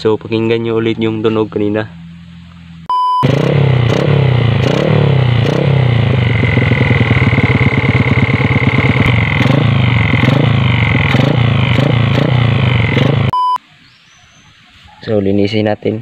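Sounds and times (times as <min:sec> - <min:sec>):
motorcycle engine revving: 0:03.2 - 0:13.6.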